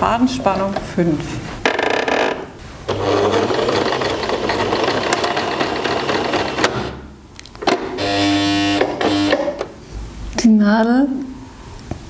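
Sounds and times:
electric sewing machine running: 2.9 - 7.0, 7.9 - 9.6.

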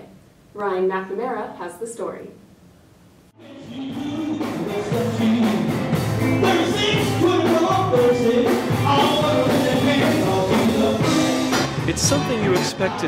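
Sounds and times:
live blues band with singer: 3.4 - 13.0.

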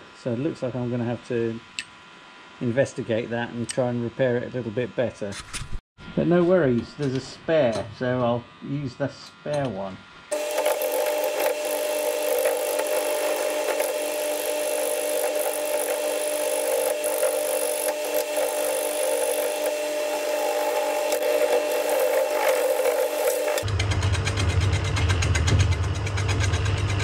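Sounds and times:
gouge cutting wood on lathe: 10.3 - 23.7
lathe hum: 10.3 - 23.7.

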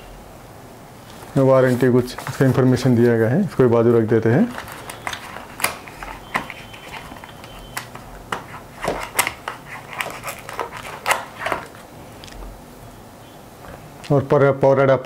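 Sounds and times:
plastic scraping cardboard: 4.4 - 11.8.

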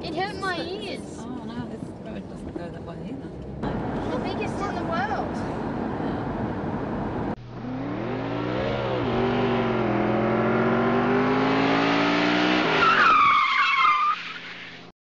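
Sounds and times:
vehicle engine revving: 3.4 - 12.9
high tyre screech: 7.6 - 14.9.

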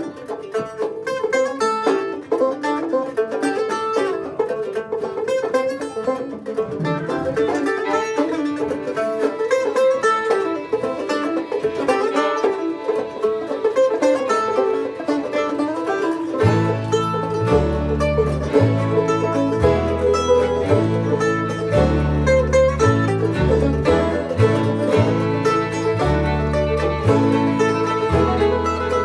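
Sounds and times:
banjo picking: 0.0 - 29.0
mandolin picking: 0.0 - 29.0
low bass: 6.4 - 9.2, 14.8 - 29.0.

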